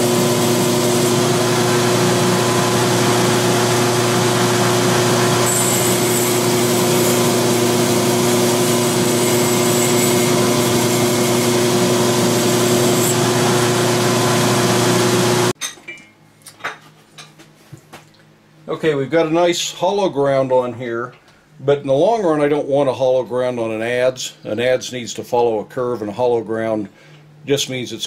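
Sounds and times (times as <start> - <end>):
belt grinder running: 0.0 - 15.5
steel hissing on grinding belt: 3.0 - 15.4.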